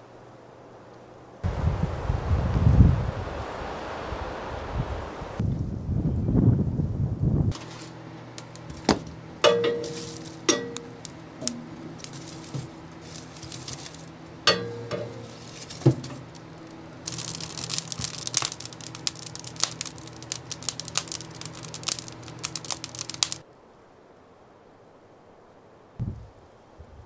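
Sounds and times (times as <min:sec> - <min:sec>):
low hum: 0:01.4 - 0:23.4
firewood knocking: 0:07.5 - 0:23.4
wood fire crackling and popping: 0:07.5 - 0:23.4.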